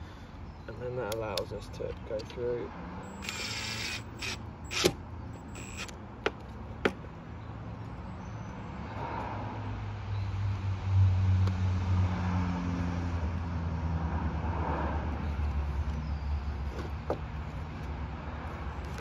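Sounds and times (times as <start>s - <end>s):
cordless drill whirring: 3.0s - 6.0s.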